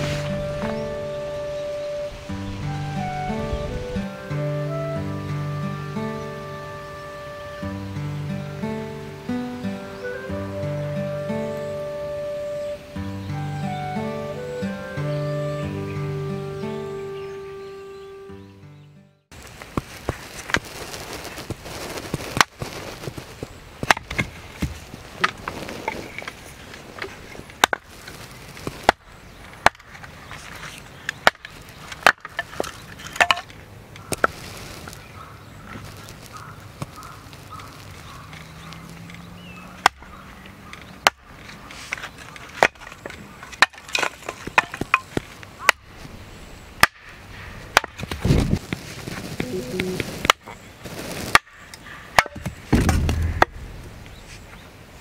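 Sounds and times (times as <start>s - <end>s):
hatchet splitting firewood: 19.3s - 35.0s, 35.8s - 54.1s.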